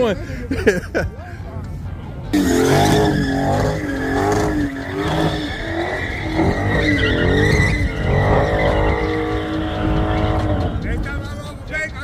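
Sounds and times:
tyres squealing: 2.4s - 11.2s
car engine revving: 2.4s - 11.4s.

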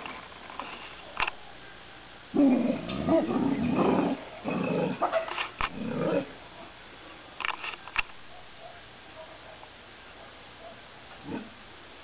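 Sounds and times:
dogs growling: 2.3s - 6.4s.

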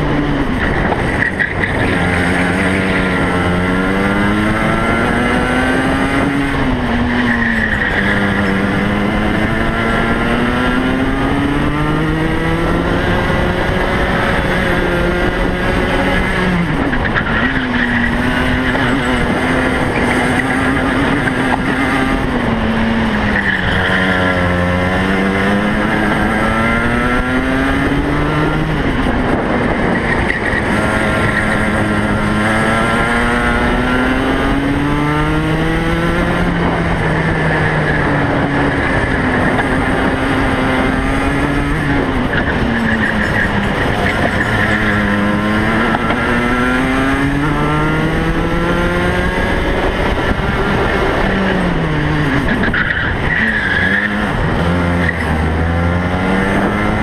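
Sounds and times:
racing kart engine: 0.0s - 57.0s.

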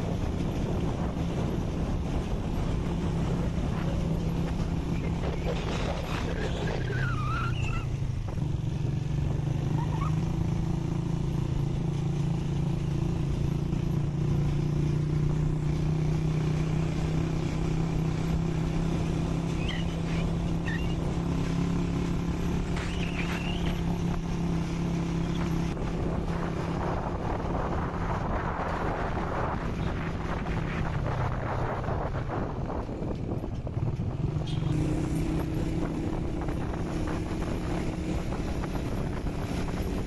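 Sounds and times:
wind noise on microphone: 0.0s - 10.1s, 19.4s - 40.0s
vehicle engine humming: 0.0s - 40.0s.

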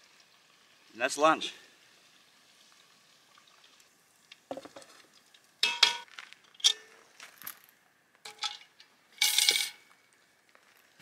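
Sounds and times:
metal tongs clinking on pans: 5.6s - 6.9s, 8.3s - 9.8s.

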